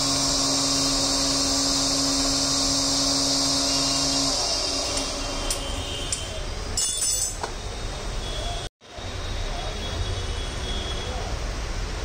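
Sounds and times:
blender motor whining: 0.0s - 5.8s.

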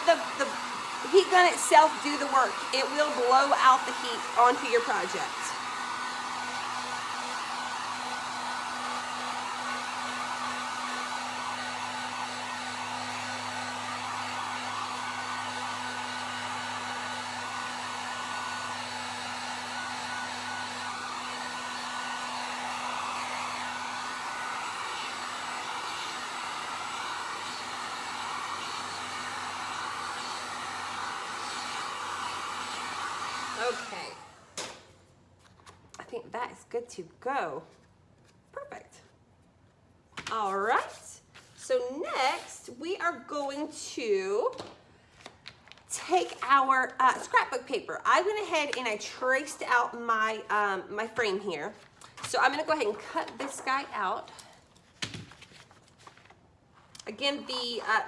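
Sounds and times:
heat gun blowing air: 0.0s - 34.9s, 40.3s - 43.8s.

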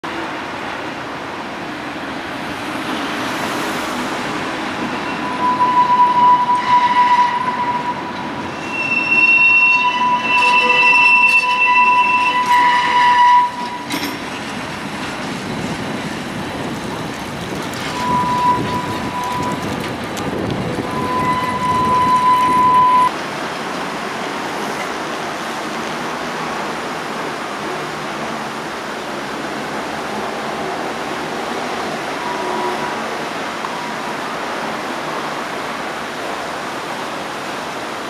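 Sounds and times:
rumble of tram cars: 0.0s - 38.0s
tram wheels squealing on rails: 2.9s - 23.2s, 29.5s - 35.6s.

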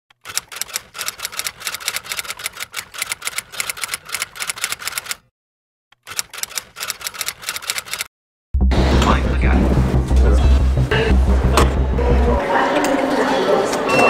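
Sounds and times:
typewriter keys clacking: 0.2s - 5.2s, 6.0s - 8.1s.

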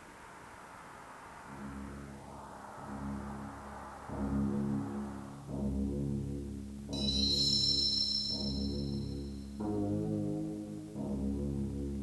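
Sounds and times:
brass ensemble low chords: 1.4s - 6.9s, 9.1s - 12.0s
high ringing tone: 7.0s - 9.6s.

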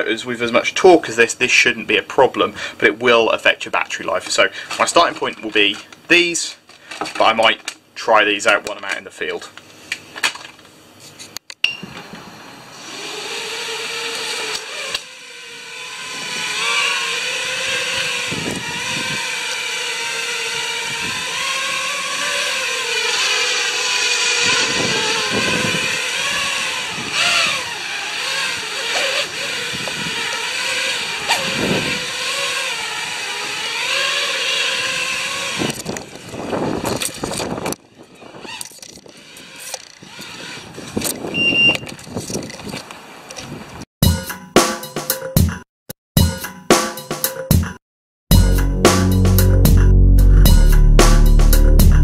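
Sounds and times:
quadcopter propellers whining: 12.0s - 42.2s.

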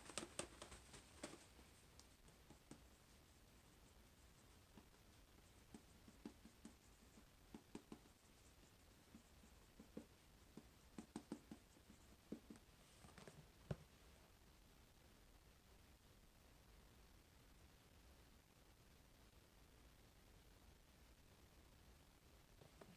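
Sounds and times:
marker writing on whiteboard: 3.8s - 12.6s.

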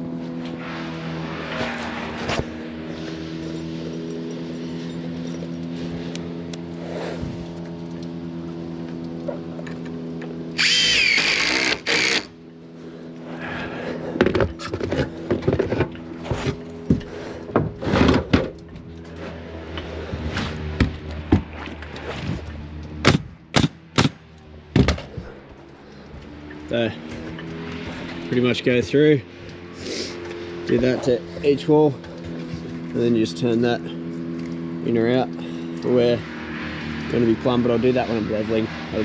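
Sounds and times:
machine humming: 0.0s - 17.7s
power drill whining: 10.5s - 12.4s
knocks and clatter of timber: 14.2s - 18.9s.

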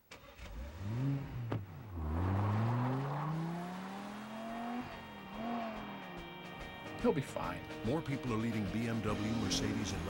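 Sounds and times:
car engine revving and accelerating: 0.3s - 6.4s, 9.2s - 10.0s.

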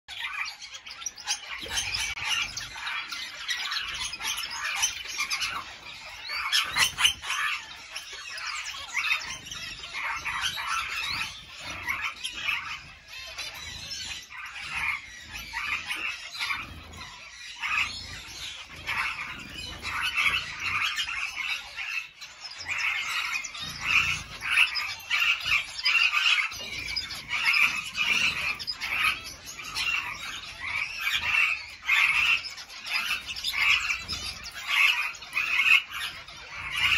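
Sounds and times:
caged birds chirping and warbling: 0.0s - 36.9s.

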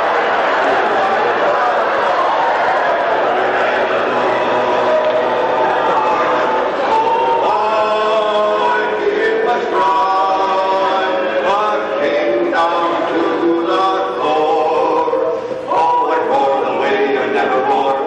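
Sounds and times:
men singing a cappella harmony: 6.8s - 18.0s.

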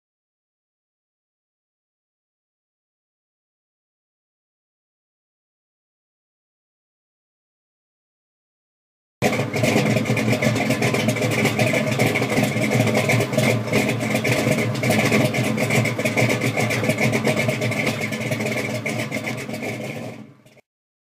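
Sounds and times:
car engine running: 9.2s - 20.6s.

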